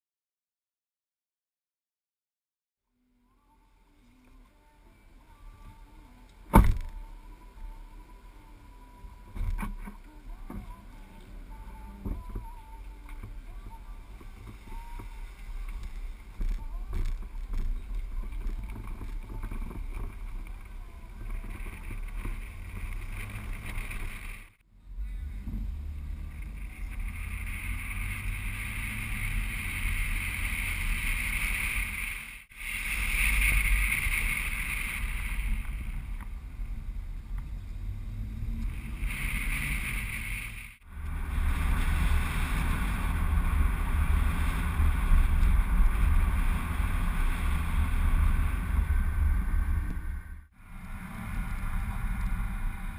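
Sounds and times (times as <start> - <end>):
car road noise: 3.2 - 52.9
wind buffeting: 14.1 - 52.9.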